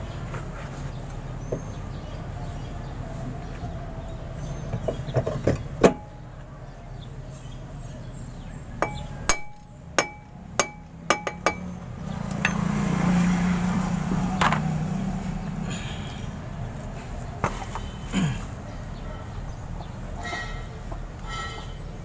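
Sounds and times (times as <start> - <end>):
hammer tapping on metal: 8.8 - 11.7.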